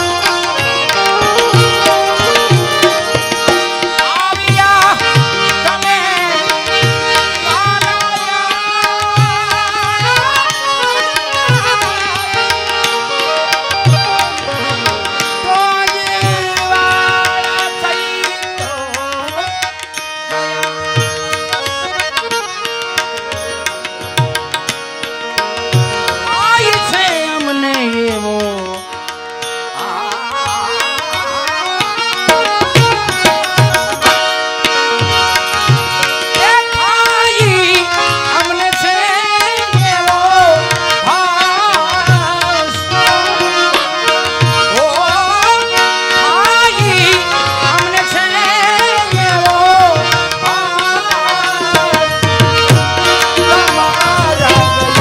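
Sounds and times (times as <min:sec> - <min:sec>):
tabla drum strokes: 0:00.0 - 0:08.0, 0:49.2 - 0:55.0
gliding melody with held notes: 0:00.0 - 0:55.0.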